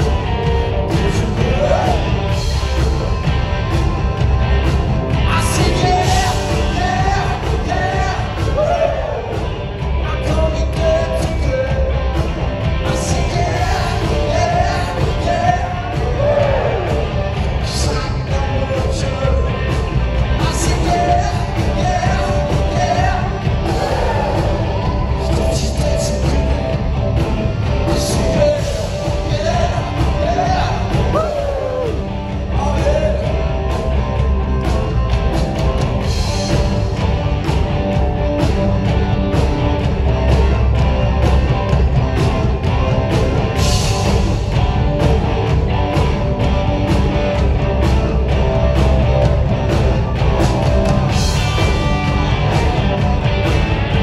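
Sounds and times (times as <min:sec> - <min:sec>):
lead singer: 0:00.0 - 0:04.0, 0:04.6 - 0:37.6
live rock band playing: 0:00.0 - 0:54.0.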